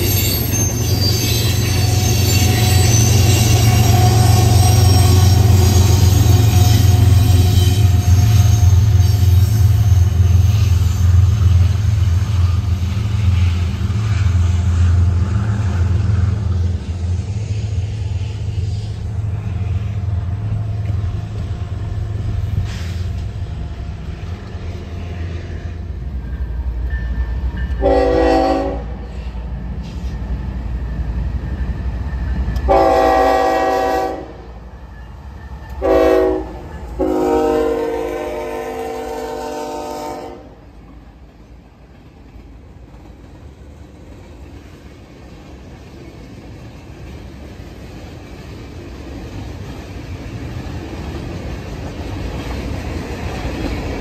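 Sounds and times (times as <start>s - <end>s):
freight train rumbling past: 0.0s - 54.0s
locomotive horn blasts: 27.8s - 29.0s, 32.7s - 34.5s, 35.8s - 40.6s.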